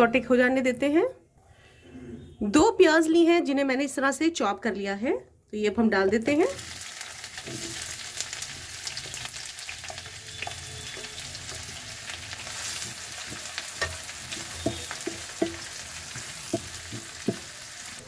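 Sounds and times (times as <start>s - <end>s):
onions sizzling in hot oil: 6.2s - 18.0s
spatula knocking against pan: 12.7s - 17.6s.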